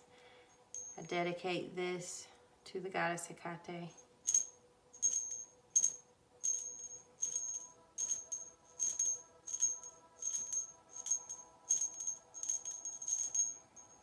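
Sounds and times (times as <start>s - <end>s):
small hand bell ringing: 0.8s - 1.1s, 4.3s - 14.0s.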